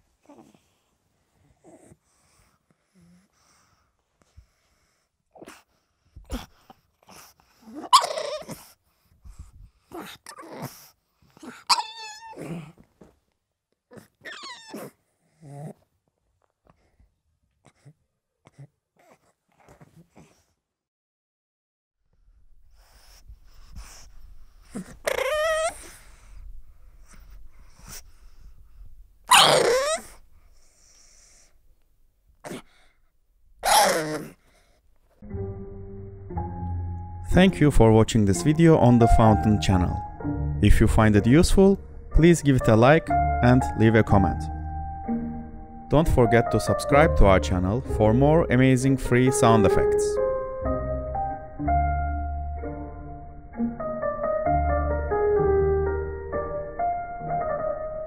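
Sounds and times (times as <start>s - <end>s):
dog breathy noises: 0.2s - 12.9s, 16.7s - 20.6s, 22.6s - 31.6s
dog whining: 7.6s - 8.6s, 9.9s - 12.8s, 13.9s - 15.8s, 24.7s - 26.1s, 29.3s - 30.2s, 33.6s - 34.4s
dog snorting: 29.3s - 31.5s, 33.6s - 34.5s.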